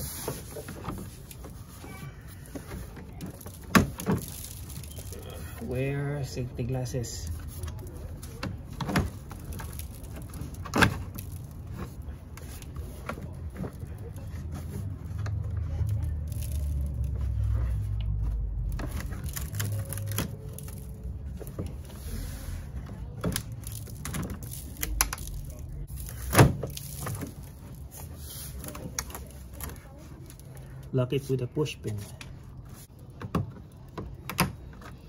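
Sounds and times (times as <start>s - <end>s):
plastic panel rustling and rubbing: 0.0s - 30.6s.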